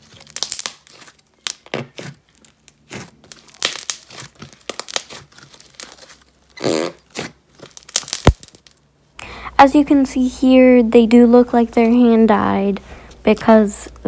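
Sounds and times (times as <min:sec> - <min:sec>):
slime crackling and popping: 0:00.0 - 0:08.9.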